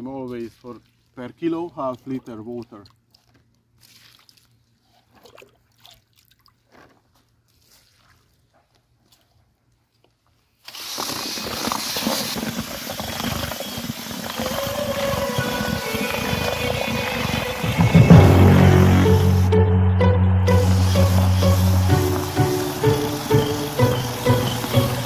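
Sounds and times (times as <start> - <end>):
cordless drill mixing: 10.6 - 18.1, 20.6 - 25.0.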